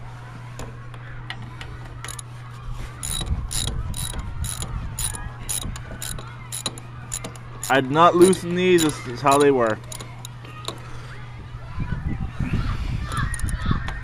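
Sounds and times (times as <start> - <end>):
ratchet wrench clicking: 2.0 - 2.2, 3.0 - 10.8, 13.1 - 13.7.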